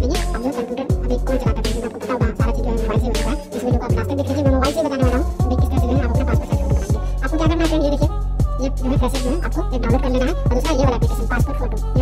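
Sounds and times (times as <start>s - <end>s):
deep bass hits: 2.4s - 9.2s.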